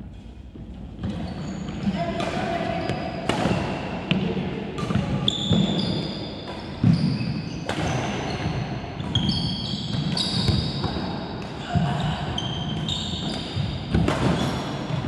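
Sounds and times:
sneakers squeaking: 0.1s - 15.0s
racket striking shuttlecock: 2.2s - 6.9s, 12.7s - 14.4s.

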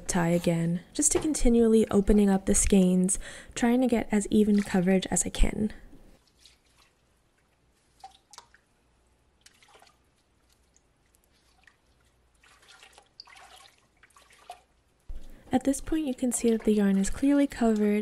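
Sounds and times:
light water splashes: 4.3s - 5.1s, 6.2s - 18.0s.

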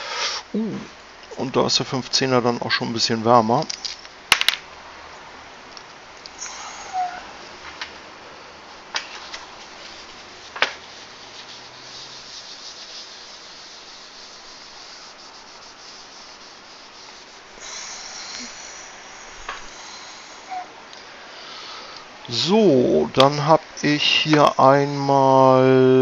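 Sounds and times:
small sharp clicks of parts: 3.6s - 4.6s
tissue wiping desk surface: 9.0s - 20.6s.

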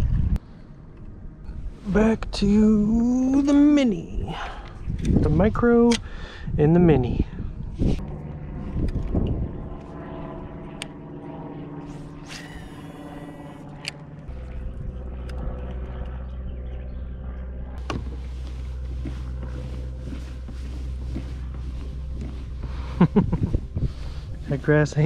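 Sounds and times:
engine droning: 8.0s - 25.0s
short high whir: 11.8s - 14.6s.

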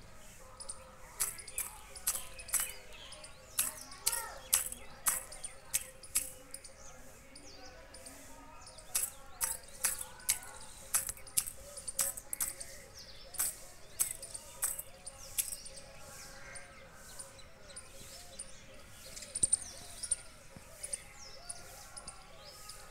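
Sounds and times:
small birds chirping: 0.0s - 22.9s
beak pecking steel bowl: 0.6s - 6.7s, 8.7s - 15.8s.

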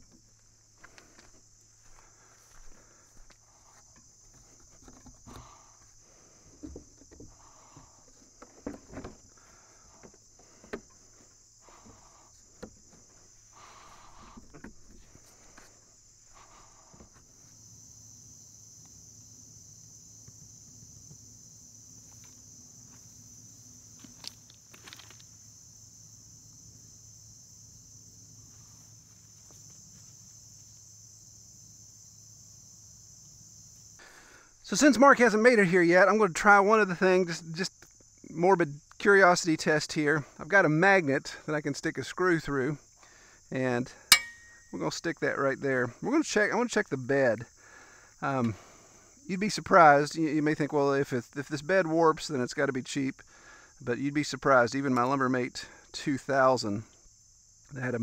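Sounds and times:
footsteps: 0.0s - 9.2s, 24.0s - 25.3s
high-pitched insect chorus: 0.0s - 58.0s.

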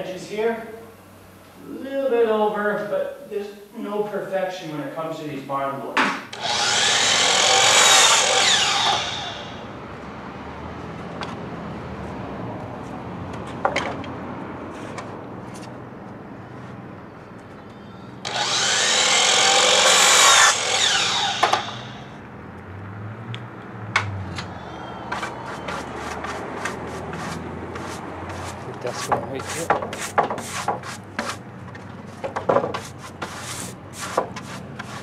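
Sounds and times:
miter saw cutting board: 6.3s - 9.7s, 18.2s - 22.2s, 25.1s - 31.4s.

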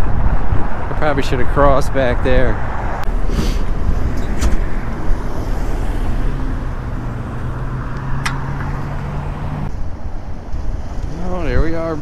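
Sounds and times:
cars driving past: 0.0s - 12.0s
sharp click: 8.0s - 8.8s.

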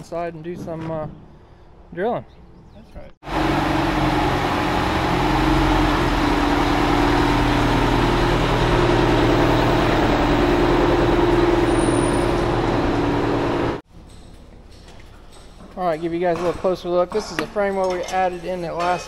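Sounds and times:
truck diesel engine idling: 3.3s - 13.8s.

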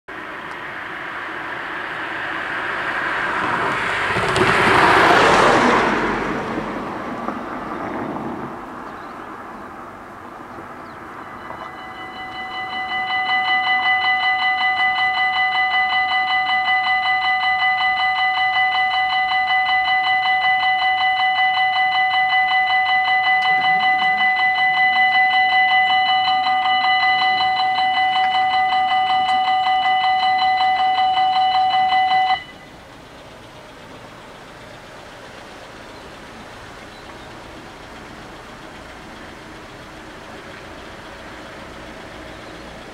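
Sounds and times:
car driving past: 0.2s - 13.1s
level crossing warning bells: 10.8s - 42.9s.

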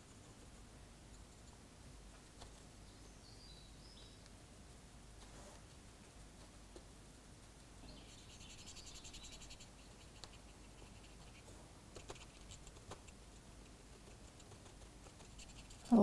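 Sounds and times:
scratchy rubbing on model: 8.0s - 13.2s, 13.9s - 16.0s.

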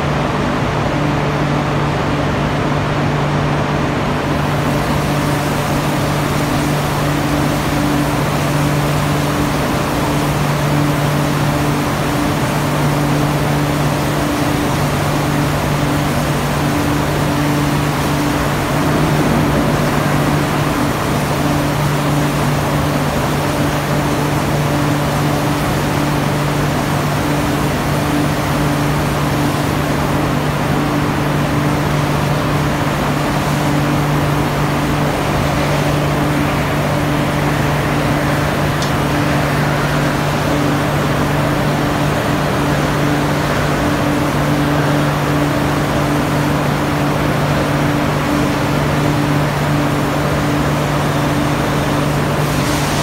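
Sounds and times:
industrial machinery hum: 0.0s - 53.0s
high machine tone: 17.7s - 22.4s.

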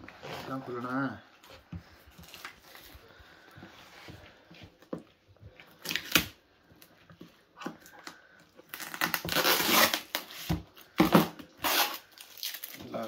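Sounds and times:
tape crinkling and tearing: 2.1s - 3.0s, 5.8s - 6.4s, 7.9s - 13.0s
scissors cutting packing tape: 8.7s - 10.5s, 11.1s - 12.8s.

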